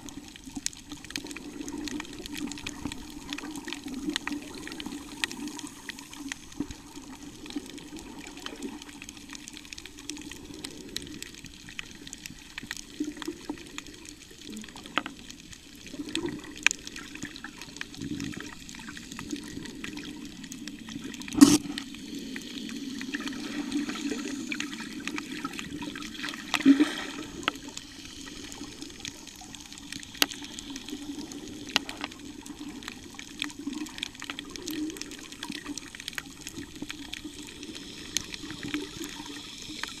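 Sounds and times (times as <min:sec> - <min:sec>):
underwater rush of moving water: 0:00.0 - 0:40.0
sharp underwater clicks: 0:27.4 - 0:40.0.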